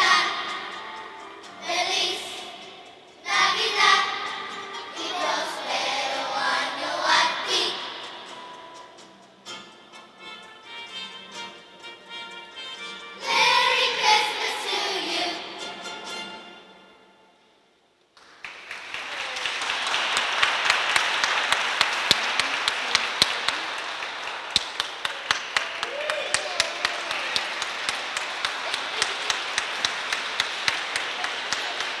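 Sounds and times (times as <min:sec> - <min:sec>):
audience applauding: 0:18.2 - 0:32.0.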